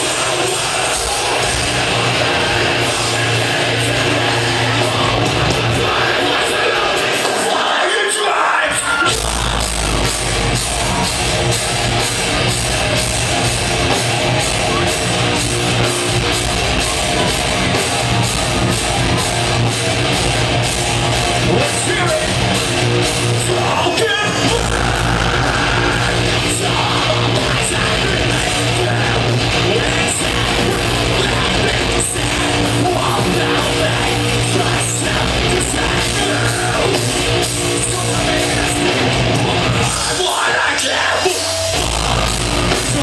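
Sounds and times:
metalcore band playing: 0.0 - 43.0
vocals over band: 0.0 - 43.0.

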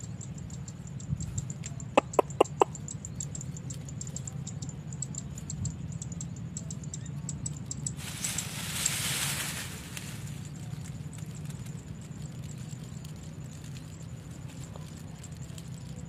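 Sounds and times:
rapid high-pitched ticking: 0.0 - 16.0
steady low rumble: 0.3 - 16.0
chicken clucking: 2.0 - 2.8.

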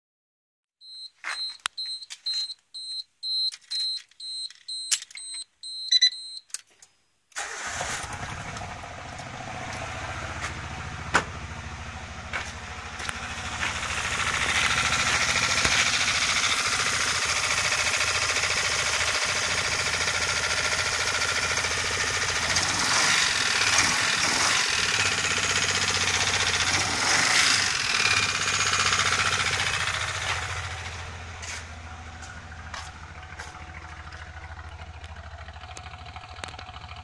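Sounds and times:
short high electronic beeps: 0.8 - 7.2
clicks: 0.9 - 7.5
car engine starting and running: 7.3 - 37.0.

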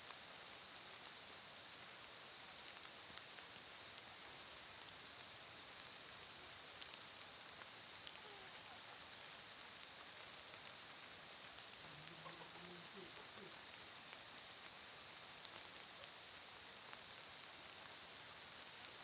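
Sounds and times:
light rain pattering: 0.0 - 19.0.

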